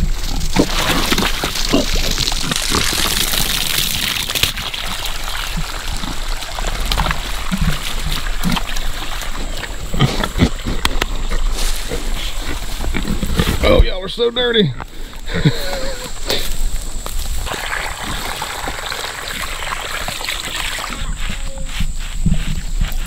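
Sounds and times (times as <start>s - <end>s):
pigs grunting: 0.0s - 3.4s, 4.8s - 13.9s, 14.6s - 16.5s
hose water pouring into mud: 0.0s - 13.7s, 15.3s - 21.2s
pigs sloshing through mud: 0.0s - 13.8s, 14.9s - 23.0s.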